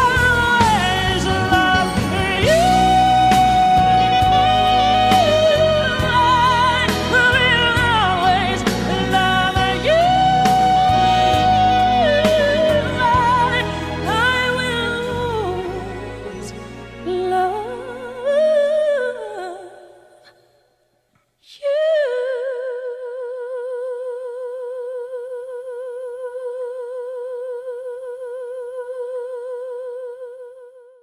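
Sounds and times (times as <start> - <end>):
held sung note with vibrato: 0.0 - 14.0
singing with music: 0.0 - 20.6.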